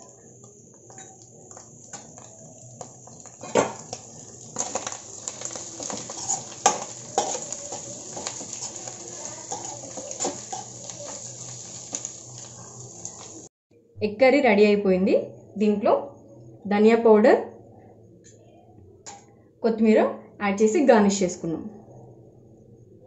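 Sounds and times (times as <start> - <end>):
sizzle of frying in oil: 0.0 - 13.5
spatula scraping pan: 4.6 - 13.3.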